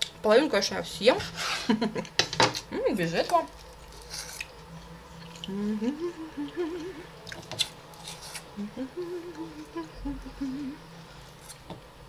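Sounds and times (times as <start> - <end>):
woman humming softly: 5.4 - 7.2, 8.6 - 11.0.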